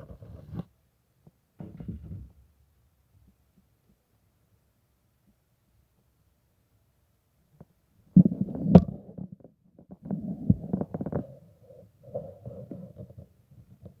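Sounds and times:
fabric rubbing on microphone: 0:00.0 - 0:00.7, 0:10.0 - 0:14.0.

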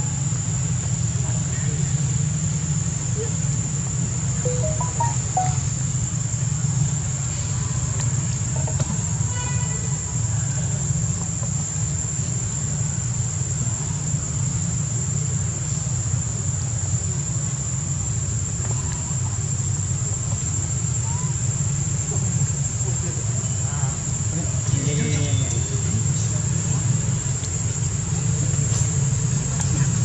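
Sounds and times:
insects droning: 0:00.0 - 0:30.0
faint short chirp: 0:04.5 - 0:05.6.

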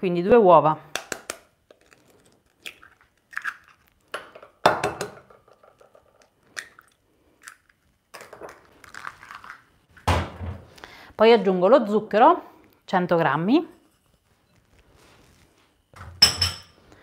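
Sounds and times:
eggshells cracking: 0:01.0 - 0:04.4, 0:05.4 - 0:10.1.

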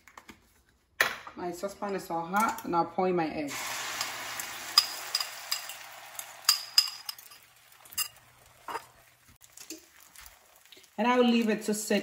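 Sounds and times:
egg sizzling in a frying pan: 0:03.5 - 0:12.0
fork clinking against ceramic bowl: 0:04.8 - 0:08.9.

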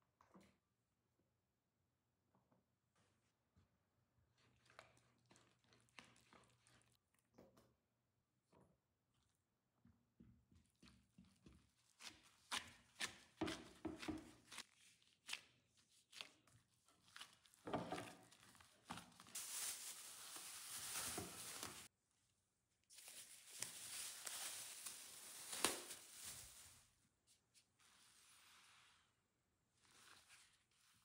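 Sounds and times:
gloved hand rustling dough: 0:11.3 - 0:22.0, 0:22.8 - 0:31.0
plastic film crinkling: 0:18.2 - 0:21.9, 0:22.9 - 0:26.9.

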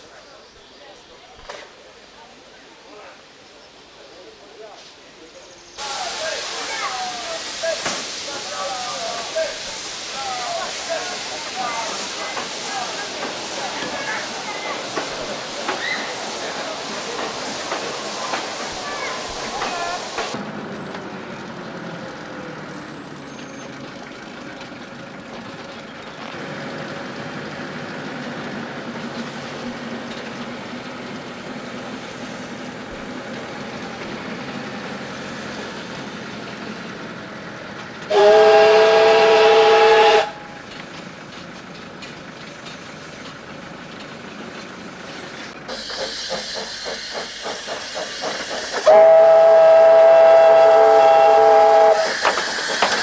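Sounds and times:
steam train running: 0:03.4 - 0:53.0
locomotive exhaust chuffing: 0:11.0 - 0:53.0
steam whistle blast: 0:38.1 - 0:40.5, 0:48.8 - 0:52.3.

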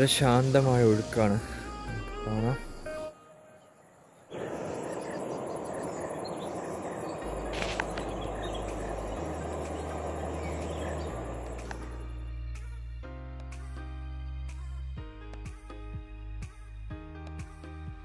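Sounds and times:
soft background music: 0:00.0 - 0:03.8, 0:07.2 - 0:18.0
insects pulsing drone: 0:00.0 - 0:12.2
faint bird chirps: 0:02.3 - 0:12.1
flowing river water: 0:04.4 - 0:12.1.

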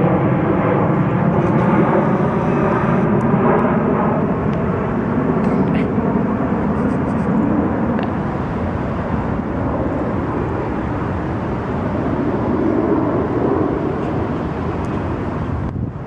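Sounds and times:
jet aircraft passing overhead: 0:00.0 - 0:16.0.

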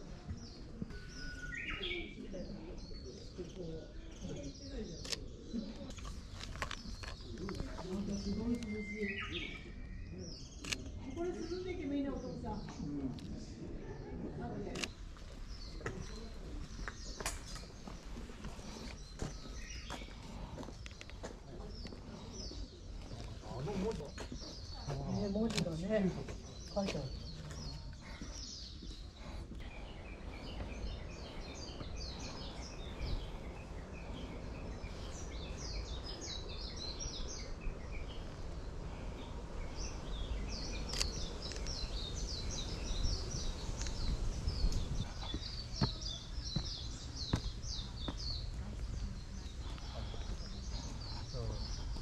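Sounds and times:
birds chirping: 0:00.0 - 0:52.0
sharp clicks: 0:40.9 - 0:41.8.

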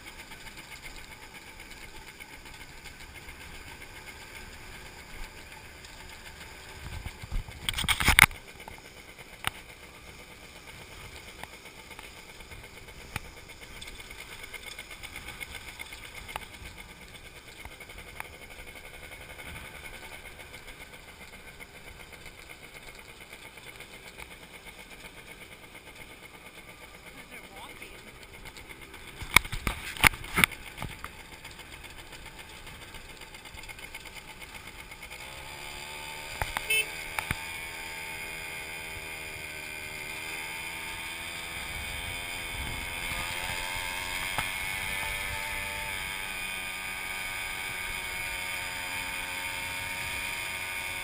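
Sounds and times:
motorbike engine running: 0:00.0 - 0:51.0
road noise: 0:00.0 - 0:51.0.

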